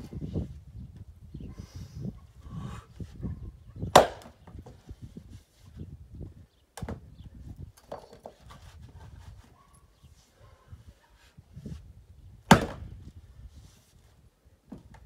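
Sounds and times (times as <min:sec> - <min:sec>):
axe splitting firewood: 0:03.9 - 0:04.6, 0:12.5 - 0:13.0
wooden knocks of logs handled: 0:03.9 - 0:04.8, 0:06.8 - 0:07.0, 0:07.8 - 0:09.0, 0:12.5 - 0:12.9, 0:14.7 - 0:15.0.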